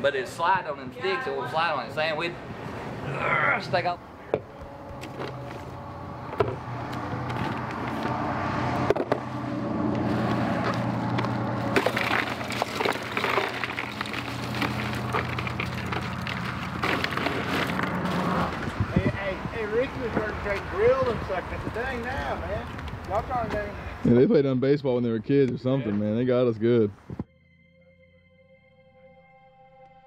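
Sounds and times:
plastic bag crinkling: 11.6 - 18.0
ice cubes clattering: 11.7 - 18.0.

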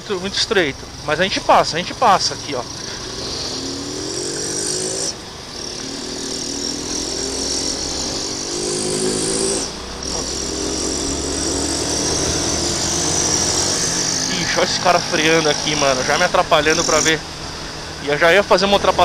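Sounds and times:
motorcycle engine accelerating: 0.0 - 19.0.

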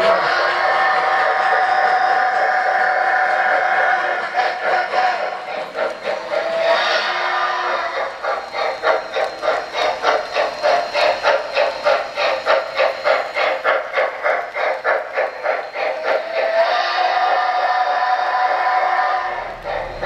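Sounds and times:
electronic steam locomotive chuffing: 0.0 - 20.0
steam whistle tone: 0.0 - 20.0.

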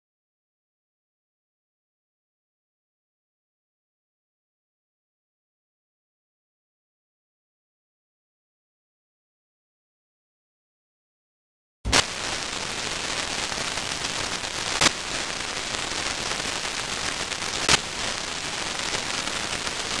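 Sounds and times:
sharp pops: 11.9 - 20.0
static hiss: 11.9 - 20.0.

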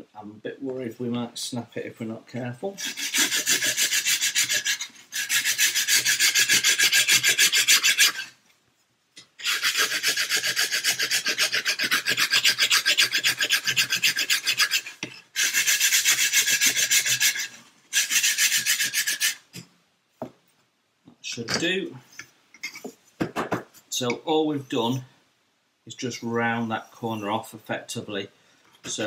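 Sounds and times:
sanding stick rubbing on wood: 2.8 - 8.4, 9.4 - 19.5.

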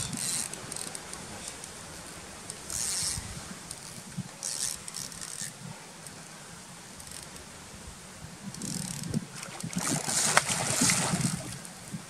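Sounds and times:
fishing reel buzzing: 0.0 - 1.1, 2.5 - 5.6, 8.5 - 11.4.

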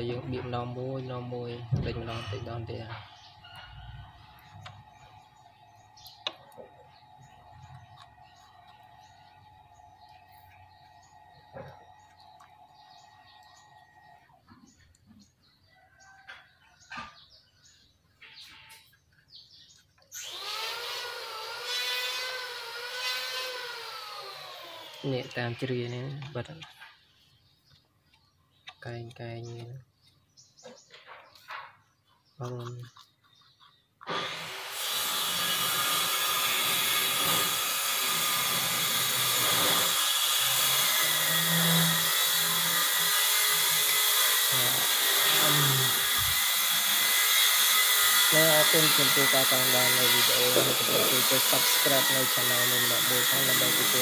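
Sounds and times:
small electric motor whining: 20.1 - 26.3, 34.0 - 54.0.

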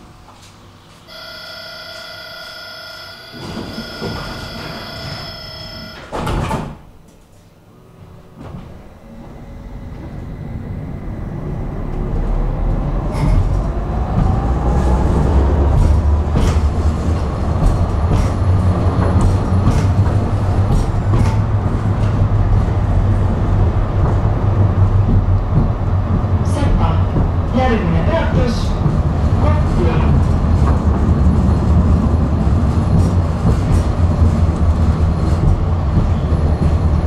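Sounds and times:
wheels rumbling on rails: 0.0 - 6.2, 7.1 - 37.0
traction motor whine: 1.1 - 6.1.

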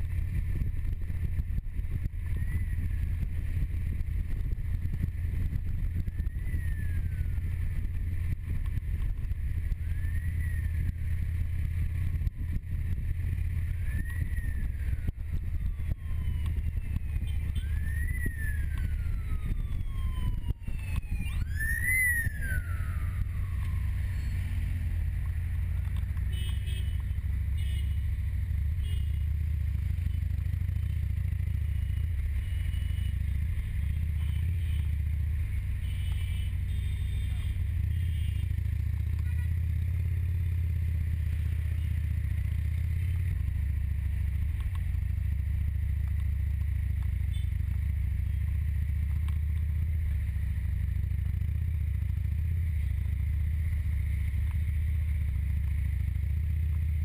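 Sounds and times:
motorcycle engine rumble: 0.0 - 57.0
wind while riding: 0.0 - 57.0
siren wailing: 5.8 - 8.1, 9.5 - 11.0, 13.5 - 25.2.

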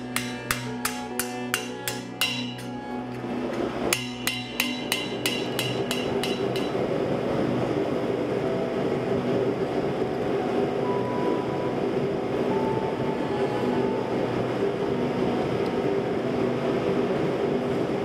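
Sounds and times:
hammer ringing on steel: 0.0 - 2.8, 3.9 - 6.8.

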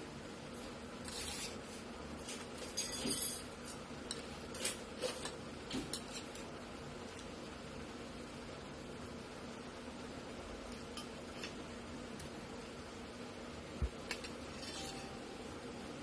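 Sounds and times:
cutlery scraping a plate: 2.2 - 6.4, 14.2 - 15.2.

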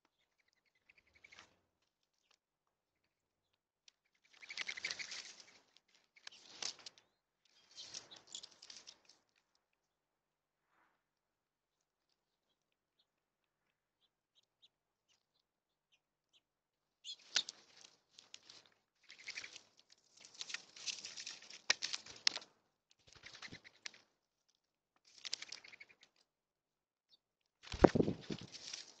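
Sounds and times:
bird wings flapping: 4.4 - 5.6, 23.1 - 24.0, 27.7 - 29.0.

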